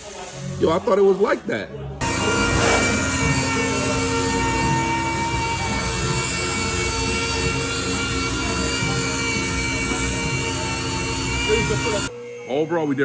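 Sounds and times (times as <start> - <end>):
pneumatic orbital sander whining: 2.0 - 12.1.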